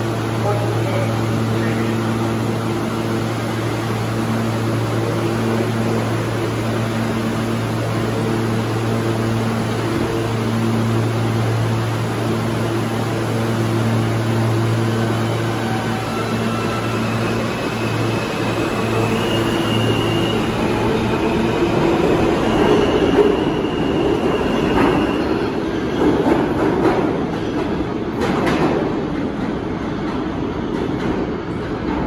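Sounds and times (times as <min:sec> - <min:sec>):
train equipment hum with hiss: 0:00.0 - 0:32.0.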